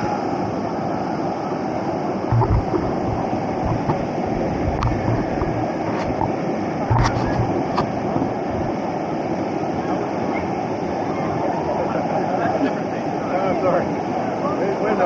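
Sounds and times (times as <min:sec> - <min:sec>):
river rapids rushing: 0:00.0 - 0:15.0
low thumps: 0:02.3 - 0:08.7.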